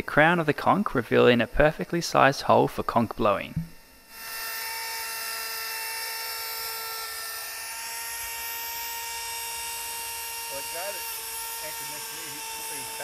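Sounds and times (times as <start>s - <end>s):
rotary tool grinding shell: 4.1s - 13.0s.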